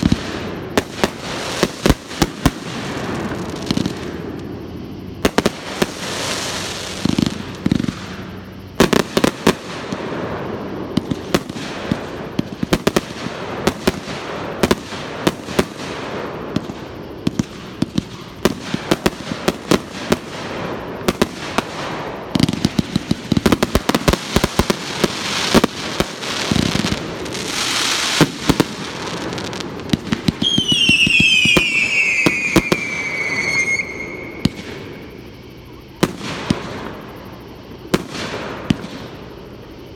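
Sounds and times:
fireworks bursting with crackling: 0:00.0 - 0:35.3, 0:36.0 - 0:37.3, 0:37.9 - 0:39.5
falling firework whistle: 0:23.5 - 0:37.1.

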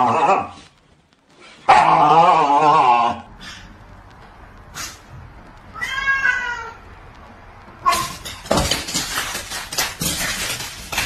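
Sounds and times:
animals scuffling on tiled floor: 0:02.8 - 0:11.0
cat meowing: 0:05.7 - 0:07.0.

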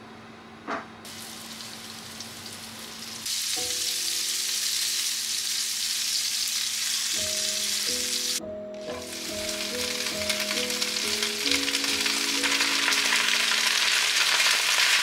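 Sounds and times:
meat sizzling in hot oil: 0:01.1 - 0:15.0
soft background music: 0:03.6 - 0:05.3, 0:07.2 - 0:14.9.

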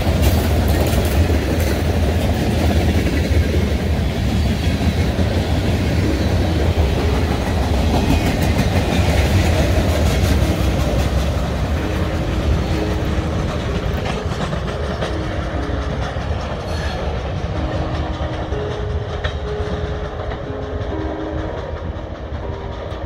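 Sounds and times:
freight train wheels clacking: 0:00.0 - 0:23.0.

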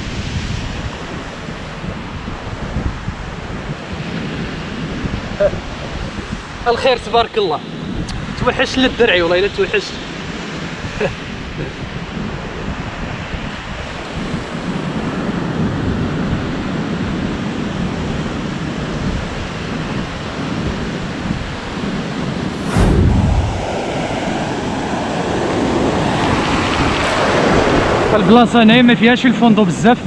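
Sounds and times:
surf washing up a sandy beach: 0:00.0 - 0:22.9
wind blowing on microphone: 0:00.0 - 0:28.9.

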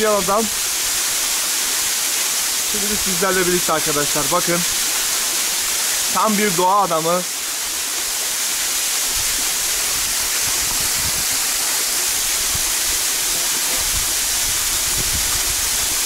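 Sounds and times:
waterfall pouring onto rock: 0:00.0 - 0:16.0.

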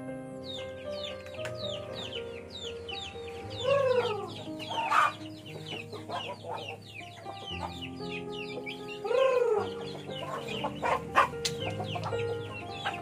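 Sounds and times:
background music with held notes: 0:00.0 - 0:13.0
high chirps: 0:00.4 - 0:13.0
chickens clucking: 0:00.5 - 0:13.0
chicken squawk: 0:03.3 - 0:07.9, 0:08.7 - 0:13.0.

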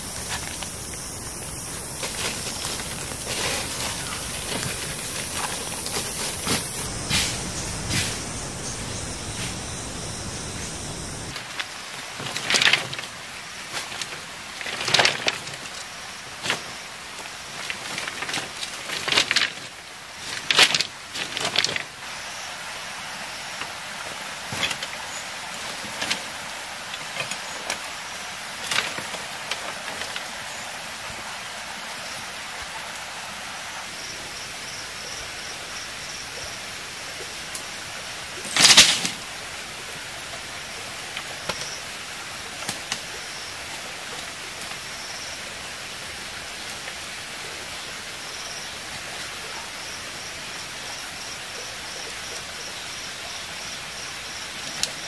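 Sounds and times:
sticks knocking and rustling: 0:01.9 - 0:08.4
bundle of sticks crashing down: 0:38.5 - 0:39.2.

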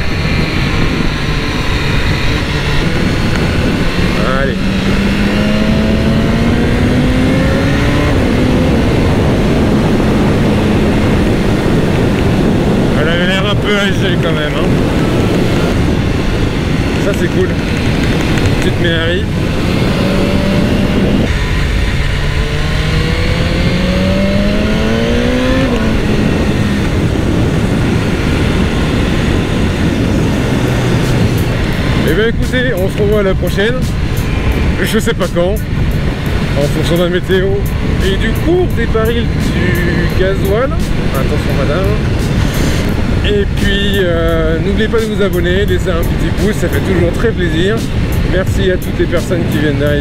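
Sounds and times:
heavy wind noise: 0:00.0 - 0:50.0
motorcycle engine accelerating: 0:00.0 - 0:50.0.

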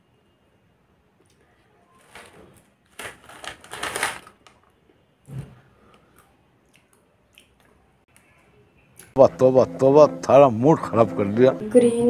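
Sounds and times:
plastic packet crinkling: 0:02.0 - 0:04.6.

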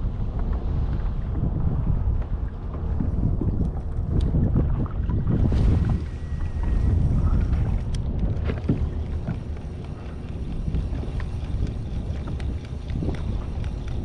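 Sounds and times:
water lapping against hull: 0:00.0 - 0:14.0
wind on microphone: 0:00.0 - 0:14.0
light ticks: 0:07.4 - 0:14.0.

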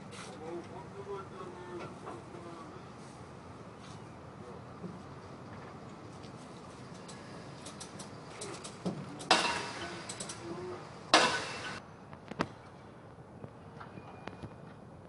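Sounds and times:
loud sharp metal bangs: 0:09.3 - 0:10.4, 0:11.1 - 0:11.8.

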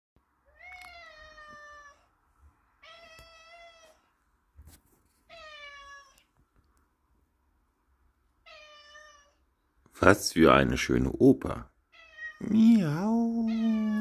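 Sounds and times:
cat meowing: 0:00.4 - 0:02.1, 0:02.8 - 0:04.1, 0:05.2 - 0:06.3, 0:08.4 - 0:09.5, 0:11.9 - 0:14.0.

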